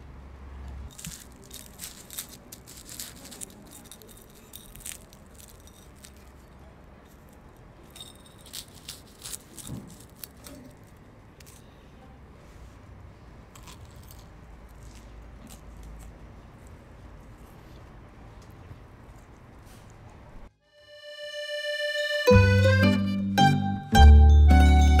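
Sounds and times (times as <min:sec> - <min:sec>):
flaky pastry crackling: 0:00.9 - 0:20.2.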